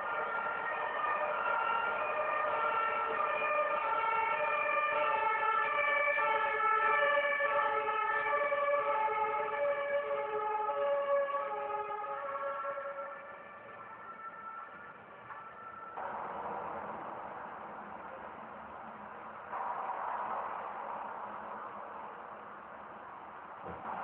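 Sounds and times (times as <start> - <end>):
two-tone siren: 0.0 - 16.9.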